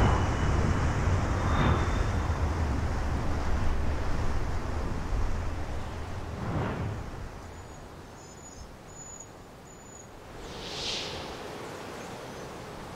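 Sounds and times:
wind rushing over microphone: 0.0 - 8.1, 10.1 - 12.9
whoosh: 6.3 - 7.4.

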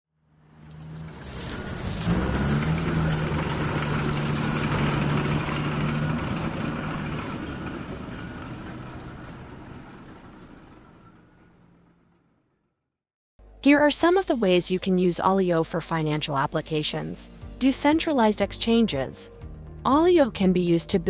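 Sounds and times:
coins jingling: 0.5 - 11.5
heavy machine engine running: 0.8 - 12.0.

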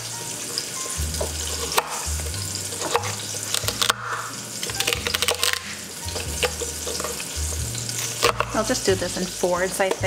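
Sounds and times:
meat sizzling in oil: 0.0 - 10.0
knife chopping on cutting board: 1.5 - 2.1.

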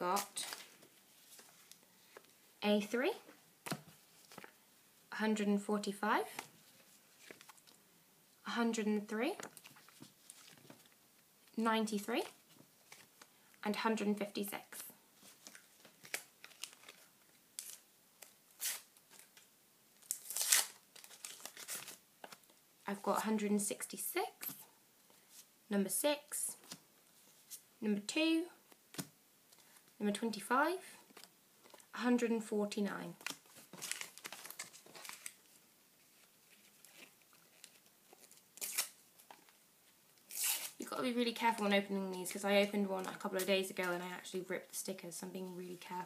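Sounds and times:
paper packets rustling: 15.2 - 22.6, 33.2 - 39.6
wrapper tearing and crinkling: 15.4 - 19.4, 20.0 - 22.0, 33.2 - 35.6, 36.5 - 39.4, 40.3 - 40.8.

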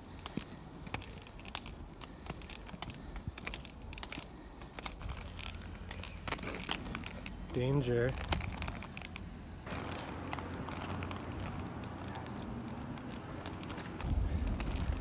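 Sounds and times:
footsteps on concrete: 0.0 - 15.0
wind rumble on microphone: 12.7 - 15.0.

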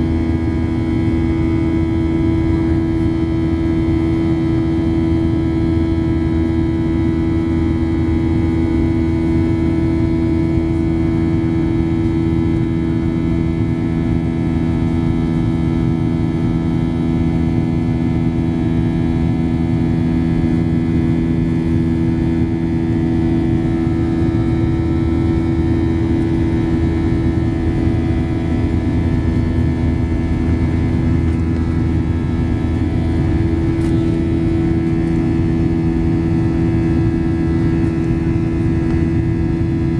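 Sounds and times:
jet engines roaring in cabin: 0.0 - 39.9.

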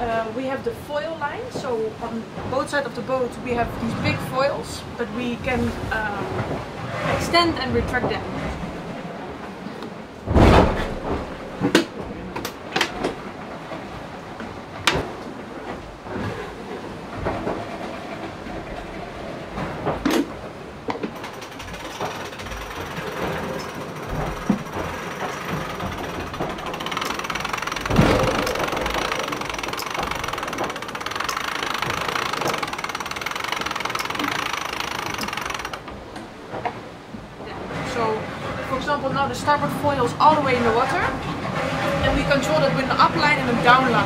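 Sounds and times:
mechanical background noise: 0.0 - 44.0
yacht rumble and water rush: 0.0 - 44.0
winch pawls clicking: 21.0 - 36.3.

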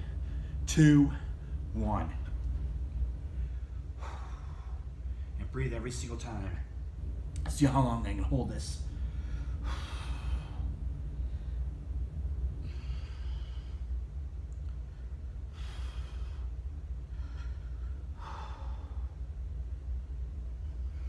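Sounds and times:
man breathing heavily: 0.0 - 1.7, 3.2 - 5.4, 8.9 - 11.8, 12.5 - 14.2, 14.8 - 19.5
steady low hum: 0.0 - 21.0.

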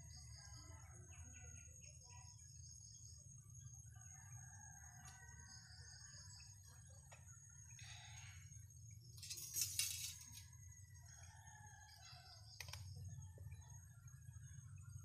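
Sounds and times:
faint low hum: 0.0 - 15.0
rustle of leaves and branches: 9.2 - 10.5.

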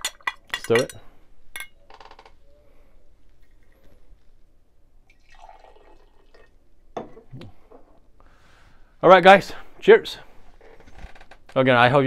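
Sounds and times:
coffee trickling into glass: 5.1 - 6.6.

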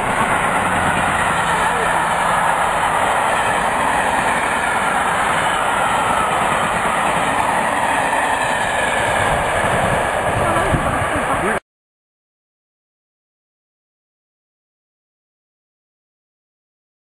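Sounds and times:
train wheels rushing on rails: 0.0 - 11.6.

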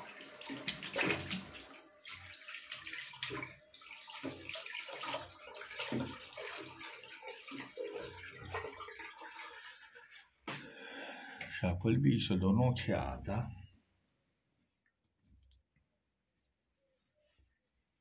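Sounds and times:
water splashing at a sink: 0.0 - 10.6.

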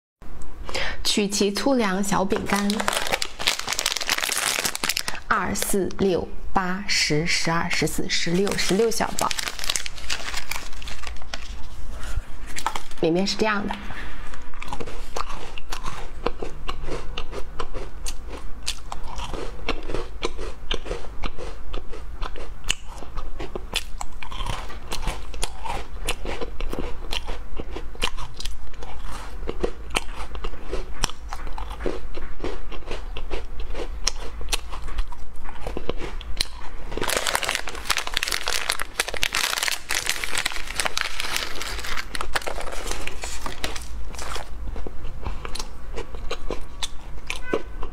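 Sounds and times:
crunching and chewing cookies: 2.3 - 5.8, 8.0 - 13.0, 14.2 - 47.9
foil snack packet crinkling: 2.3 - 5.8, 8.3 - 11.8, 37.0 - 44.5
cookies being poured out: 2.5 - 5.2, 8.4 - 11.6, 37.0 - 44.4.

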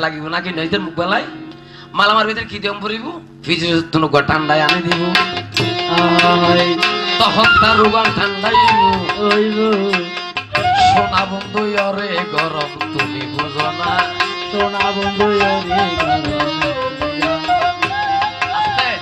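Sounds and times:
drums beating quick rhythm: 4.7 - 19.0
wavering melody line: 6.0 - 12.0.

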